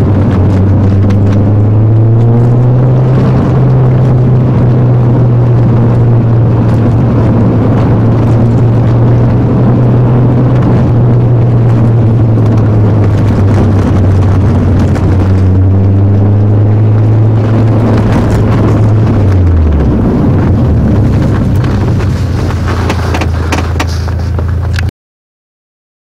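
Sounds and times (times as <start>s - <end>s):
car engine droning: 0.0s - 24.9s
clicks and knocks: 21.3s - 24.9s.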